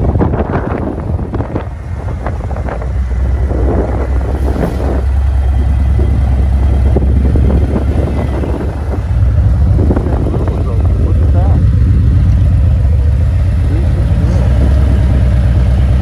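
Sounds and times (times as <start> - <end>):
motorcycle engine running: 0.0 - 16.0
wind noise on microphone: 0.0 - 16.0.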